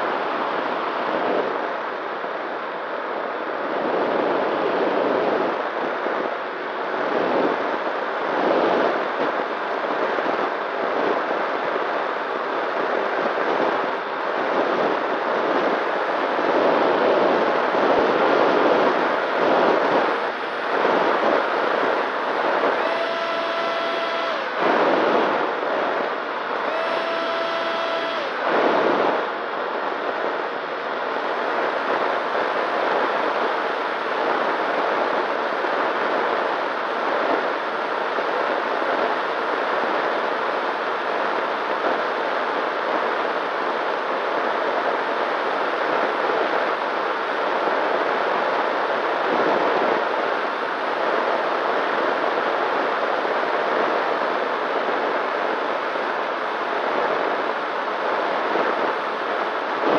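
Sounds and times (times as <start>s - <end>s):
airflow rushing over microphone: 14.4s - 36.1s, 56.9s - 59.9s
motor and propeller hum: 16.4s - 34.6s.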